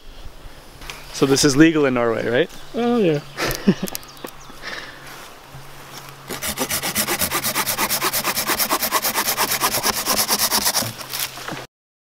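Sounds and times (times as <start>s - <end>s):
pruning saw rasping through wood: 6.3s - 11.1s.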